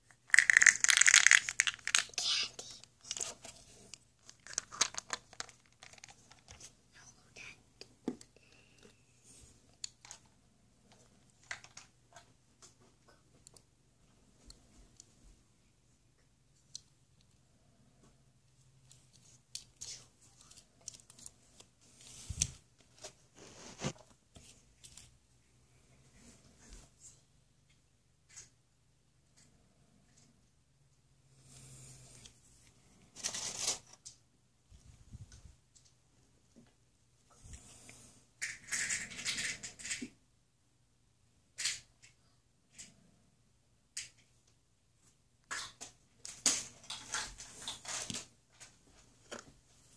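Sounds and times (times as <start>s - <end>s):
plastic toy clicking and rustling: 0.1s - 3.5s, 4.2s - 6.6s, 38.4s - 40.1s.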